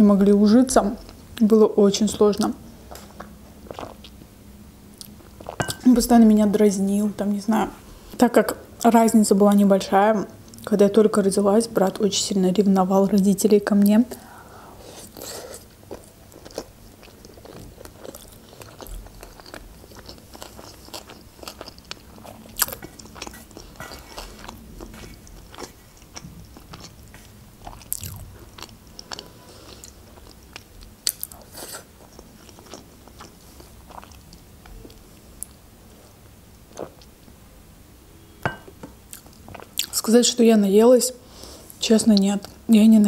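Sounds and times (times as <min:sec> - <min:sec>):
chewing noodles: 0:15.1 - 0:35.6.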